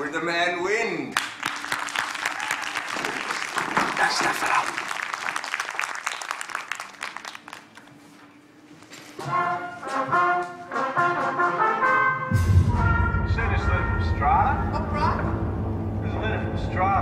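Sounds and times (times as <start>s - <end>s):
applause: 1.2s - 8.2s
wind band playing: 9.2s - 17.0s
deep low sound: 12.3s - 17.0s.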